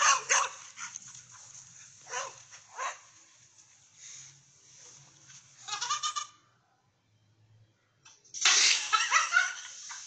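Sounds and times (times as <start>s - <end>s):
dog barking: 0.0s - 1.0s, 2.0s - 3.1s.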